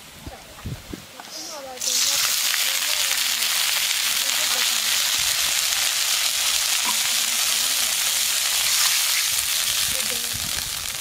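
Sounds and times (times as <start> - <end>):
oil sizzling in a wok: 1.2 - 11.0.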